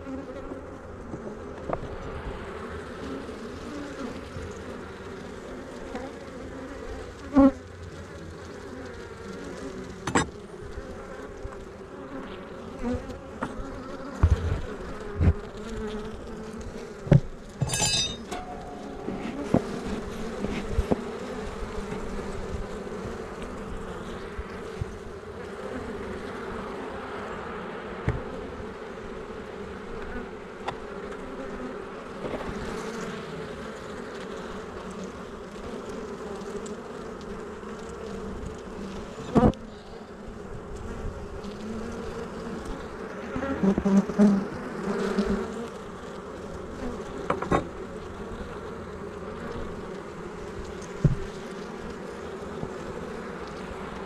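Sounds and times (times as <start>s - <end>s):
honey bees buzzing: 0.0s - 54.0s
hive tool scrape: 9.6s - 11.2s, 12.8s - 25.0s.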